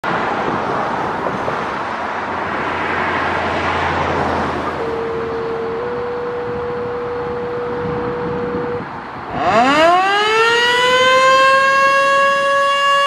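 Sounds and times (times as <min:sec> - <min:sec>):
road traffic: 0:00.0 - 0:13.0
two-tone radio page tone: 0:04.8 - 0:08.8.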